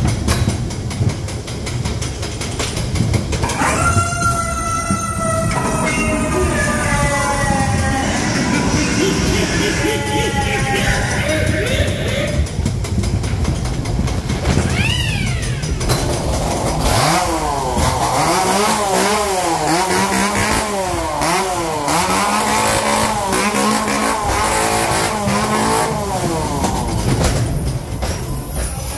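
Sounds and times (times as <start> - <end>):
ride car rumble: 0.0 - 28.9
engine-like revving effect: 5.0 - 13.1, 14.1 - 27.7.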